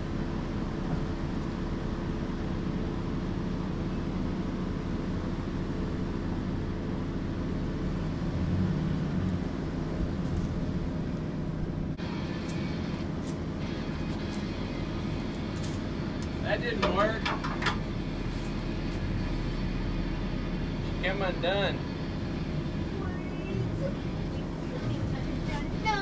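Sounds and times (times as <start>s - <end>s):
truck engine running at low revs: 0.0s - 26.0s.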